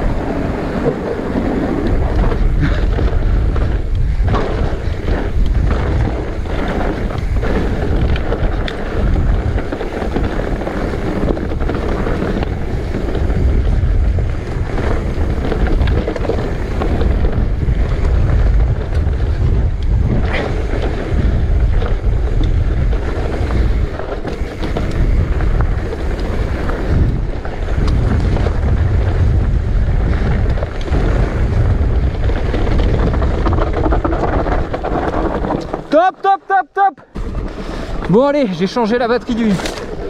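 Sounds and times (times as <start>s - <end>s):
wind buffeting microphone: 0.0s - 36.0s
bike knocks and rattles: 0.0s - 36.4s, 37.1s - 40.0s.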